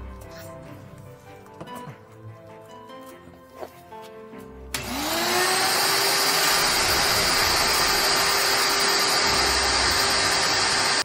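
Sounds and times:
vacuum cleaner motor whine: 0:04.7 - 0:11.0.

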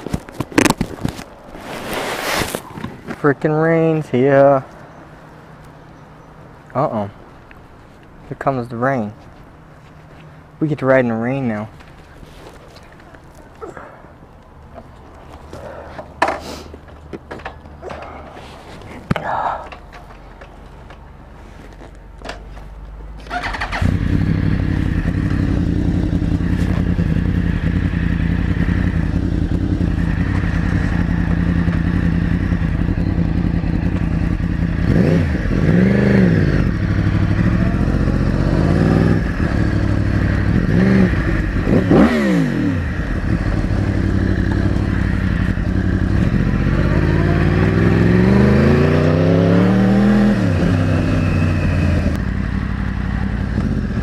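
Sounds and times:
motorcycle engine starting and revving: 0:23.2 - 0:54.0.

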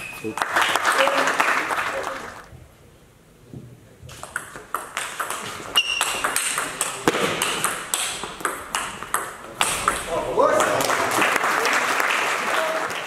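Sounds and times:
table tennis ball clicking: 0:04.2 - 0:10.1.

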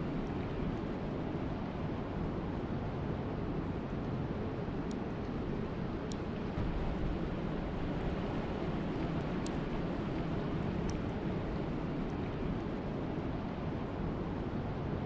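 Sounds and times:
wind and rain: 0:00.0 - 0:15.0
faint ticks: 0:10.8 - 0:11.1.

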